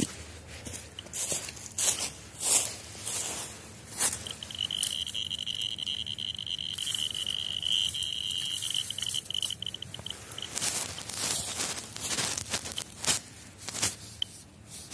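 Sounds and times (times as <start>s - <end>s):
dry leaves rustling: 0.0s - 14.9s
dosimeter beeping: 3.9s - 11.6s.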